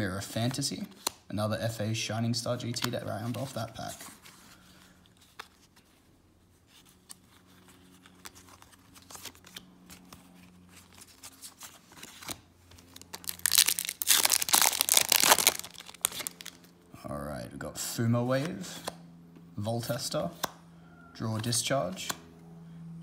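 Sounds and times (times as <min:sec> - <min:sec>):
foil wrapper tearing and crinkling: 0:10.6 - 0:16.7.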